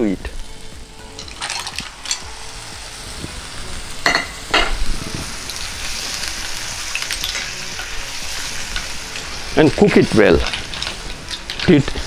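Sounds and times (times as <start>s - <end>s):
food sizzling in pan: 0.0s - 12.0s
clams clattering into pan: 1.2s - 2.3s, 6.9s - 8.0s, 10.2s - 12.0s.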